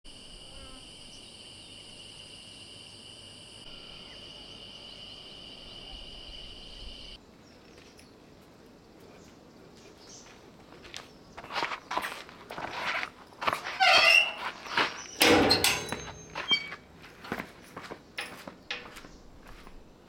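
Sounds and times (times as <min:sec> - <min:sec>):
shrill insect chorus: 0:00.1 - 0:07.2.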